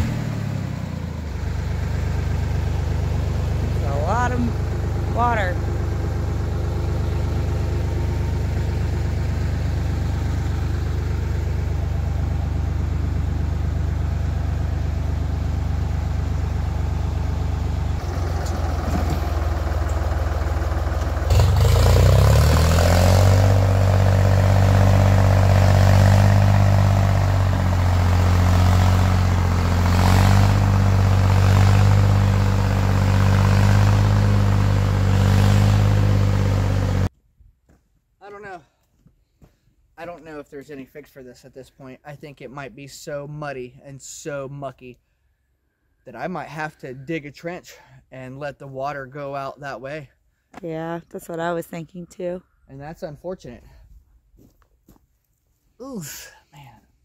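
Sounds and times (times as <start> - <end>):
tractor engine running: 0.0 - 37.1.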